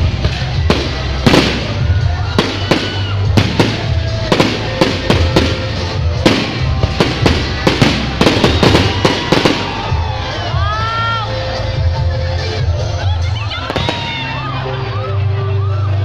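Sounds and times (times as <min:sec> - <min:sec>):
fireworks bangs: 0:00.0 - 0:10.1.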